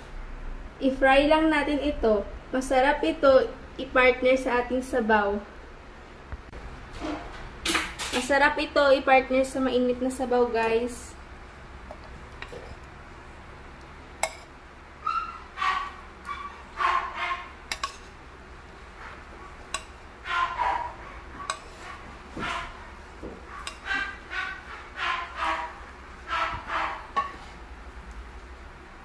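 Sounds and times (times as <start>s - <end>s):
utensils clinking on frying pan: 14.2s - 14.5s, 17.7s - 18.2s, 19.6s - 20.6s, 21.4s - 21.8s, 23.6s - 24.2s, 27.1s - 27.4s
dog barking: 15.0s - 17.6s, 20.2s - 22.9s, 23.5s - 27.2s.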